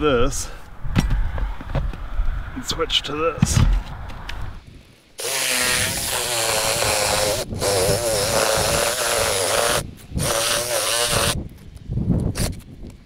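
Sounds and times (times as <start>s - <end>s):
cordless drill whining under load: 5.2s - 11.4s.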